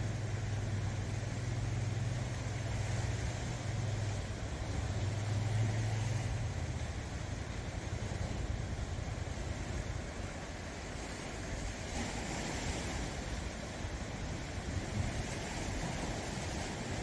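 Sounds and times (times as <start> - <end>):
low engine drone: 0.0 - 10.2
waves washing over rocks: 0.0 - 17.0.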